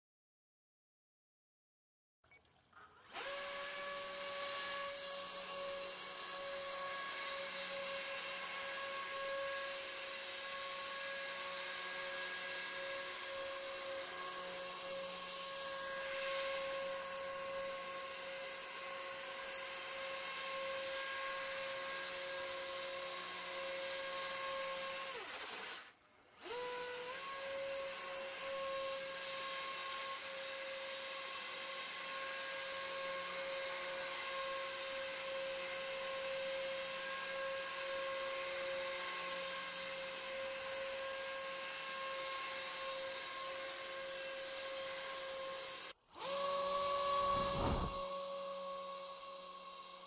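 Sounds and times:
hovercraft motor whining: 0:46.3 - 0:48.1
rush of air: 0:47.2 - 0:48.0.

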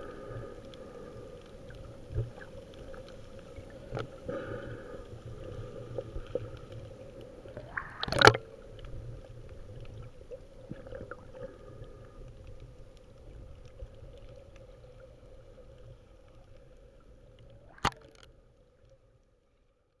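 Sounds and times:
faint steady hum: 0:00.0 - 0:20.0
underwater low rumble: 0:00.0 - 0:20.0
sharp click: 0:17.8 - 0:18.3.

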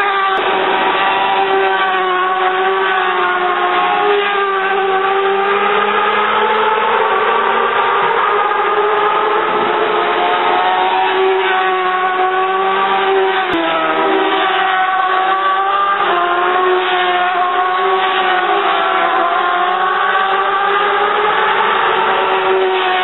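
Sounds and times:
racing motorcycle engines revving: 0:00.0 - 0:23.0.

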